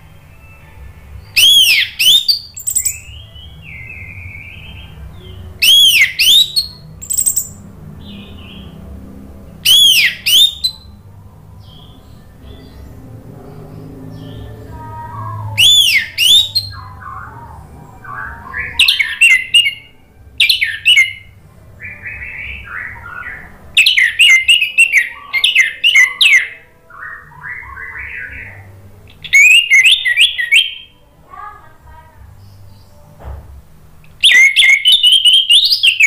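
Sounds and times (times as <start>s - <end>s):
thrush whistled song: 1.3s - 5.0s, 5.6s - 8.7s, 9.6s - 10.9s, 15.5s - 17.3s, 17.9s - 30.9s, 34.2s - 36.0s.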